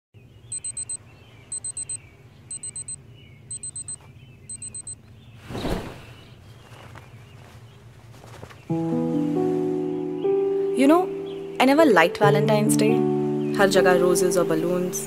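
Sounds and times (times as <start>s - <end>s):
phone alarm beeping: 0.5s - 5.0s
bedding rustling whoosh: 5.4s - 9.8s.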